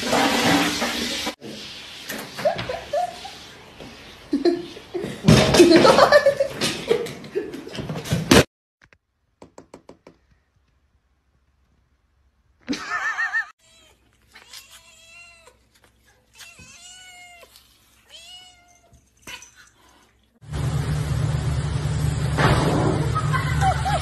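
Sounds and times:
cats meowing: 13.6s - 19.6s.

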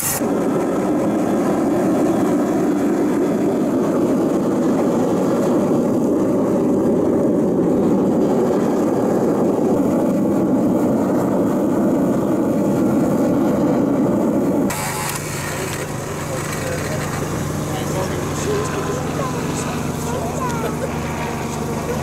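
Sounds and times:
furnace blower rushing noise: 0.0s - 1.8s, 14.3s - 22.0s.

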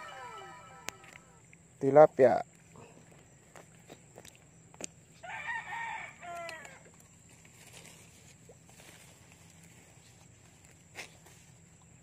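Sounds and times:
rooster crowing: 0.0s - 1.2s, 5.2s - 6.8s.

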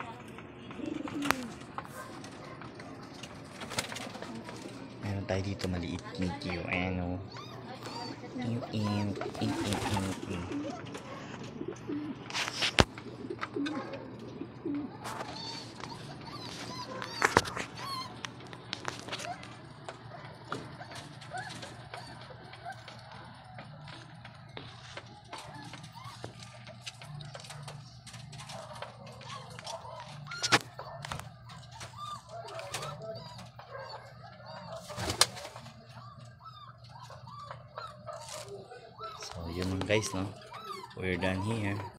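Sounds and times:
pigeons cooing: 0.0s - 41.9s.

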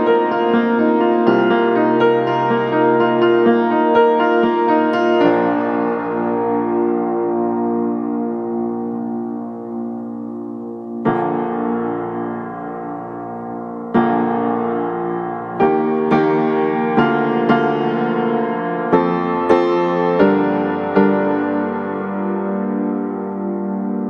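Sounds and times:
slow piano chords: 0.0s - 24.0s.

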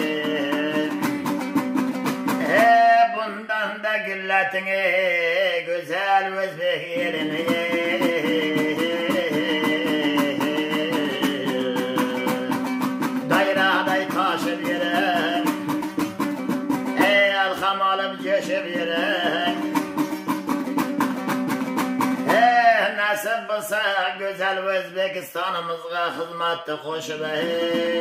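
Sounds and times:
strummed two-stringed lute: 0.0s - 3.4s, 6.5s - 23.3s, 27.2s - 28.0s
man singing folk song: 0.0s - 28.0s.

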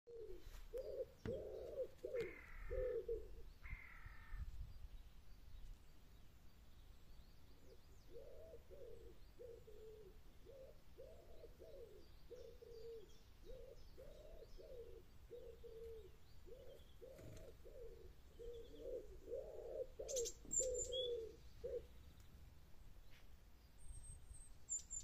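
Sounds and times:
pigeon cooing: 0.1s - 3.5s, 8.1s - 21.9s
crow cawing: 2.1s - 4.5s.

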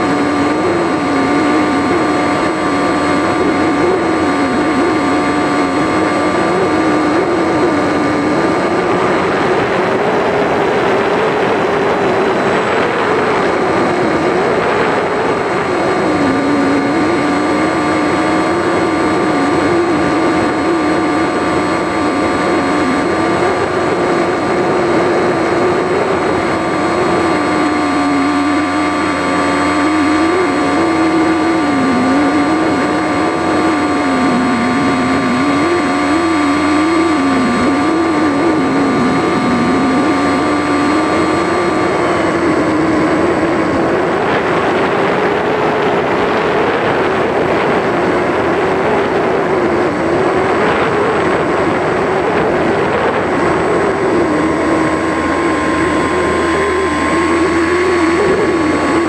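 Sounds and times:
electric motor and propeller drone: 0.0s - 59.0s
high whine: 0.0s - 59.0s.

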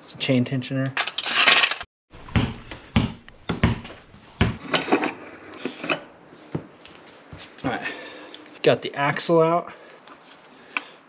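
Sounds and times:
basketball bouncing on concrete: 2.2s - 4.7s.

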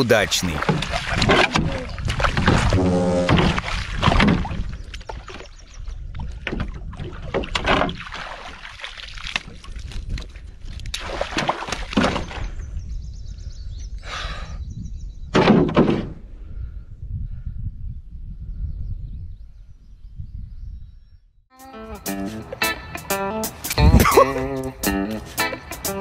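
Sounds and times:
water splashing: 0.0s - 5.6s, 6.2s - 12.5s
wind rumble on microphone: 0.8s - 7.9s, 9.3s - 11.0s, 11.8s - 15.4s, 16.1s - 21.4s.

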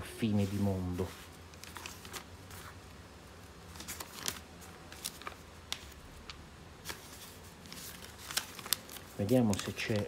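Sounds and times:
crisp paper crackles: 0.3s - 2.9s, 3.6s - 10.0s
paper pages rustling: 0.3s - 10.0s.

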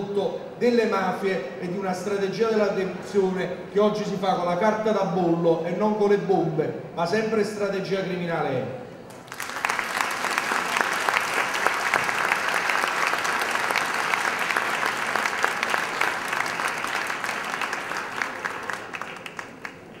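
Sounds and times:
audience applauding: 9.1s - 20.0s.

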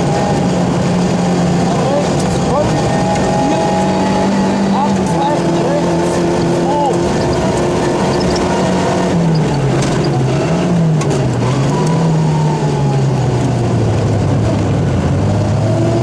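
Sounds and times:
rally car engine under load: 0.0s - 16.0s
sharp ticks: 6.9s - 8.5s.

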